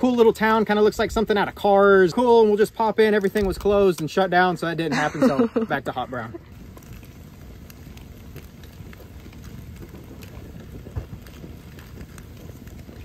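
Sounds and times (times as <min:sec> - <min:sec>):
campfire flames rushing: 0:00.0 - 0:13.0
fire crackling and popping: 0:00.0 - 0:13.0.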